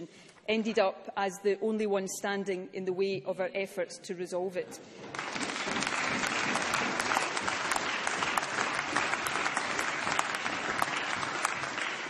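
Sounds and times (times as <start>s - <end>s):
crowd clapping: 5.1s - 12.0s.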